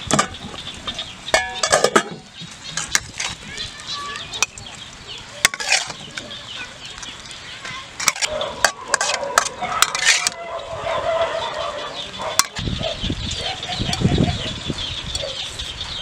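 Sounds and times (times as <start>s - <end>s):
chickens clucking: 0.0s - 16.0s
metal spoon clinking on pan and plate: 1.3s - 2.2s.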